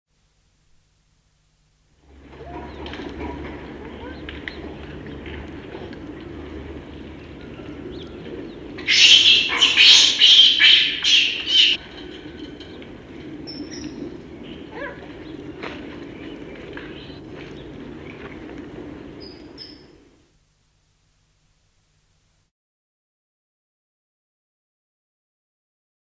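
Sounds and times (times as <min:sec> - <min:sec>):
low background noise: 0:00.1 - 0:22.5
monkey squealing: 0:08.9 - 0:11.8.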